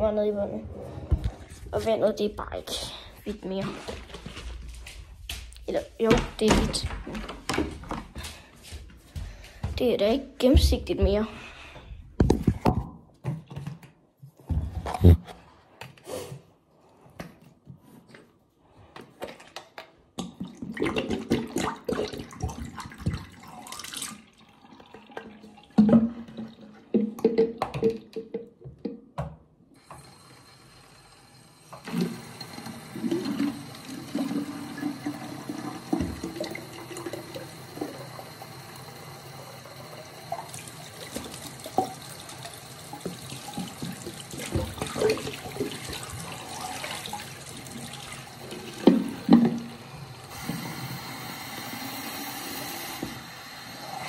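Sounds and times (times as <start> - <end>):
tap running into sink: 48.6 - 49.7.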